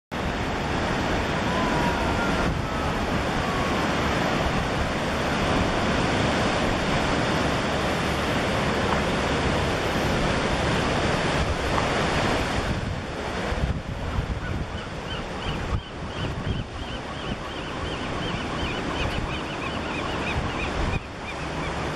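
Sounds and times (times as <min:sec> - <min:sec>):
ocean surf breaking: 0:00.1 - 0:16.8
wind on microphone: 0:00.2 - 0:21.9.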